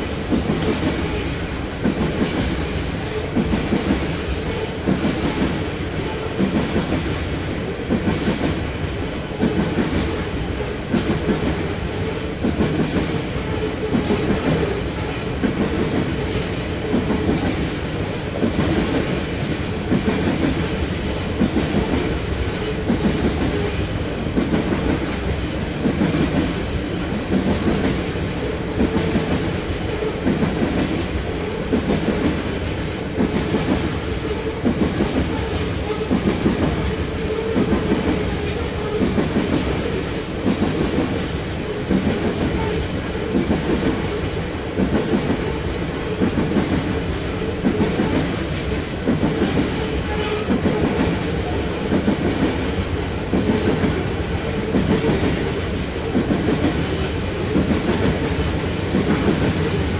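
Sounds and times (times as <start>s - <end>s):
train wheels clacking over rail joints: 0.0s - 59.9s.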